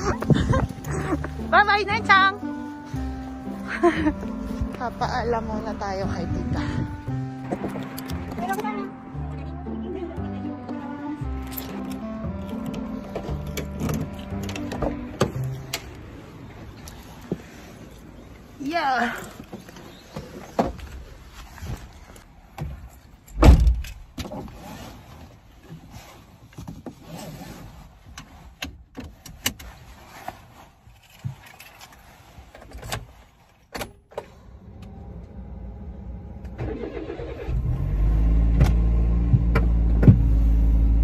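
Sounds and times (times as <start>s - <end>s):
car engine starting and idling: 0.0s - 18.5s, 33.8s - 41.0s
car door shutting: 23.3s - 24.4s, 38.5s - 40.6s.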